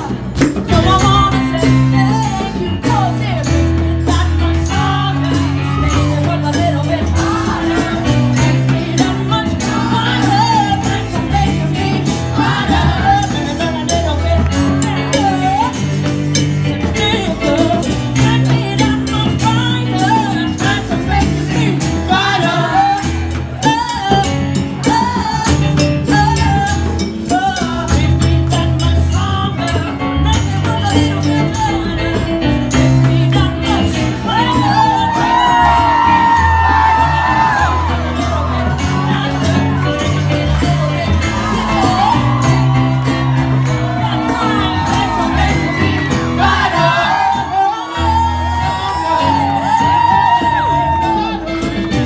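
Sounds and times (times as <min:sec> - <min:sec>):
bongos: 0:00.0 - 0:52.0
hand percussion: 0:00.0 - 0:52.0
person singing: 0:16.8 - 0:52.0.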